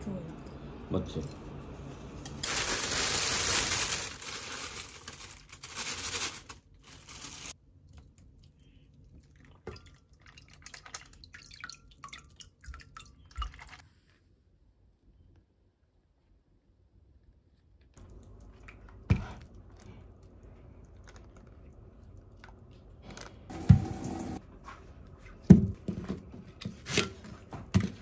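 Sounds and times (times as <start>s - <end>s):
plastic bag rustling: 2.3s - 7.6s
water dripping into a pot: 7.8s - 13.8s.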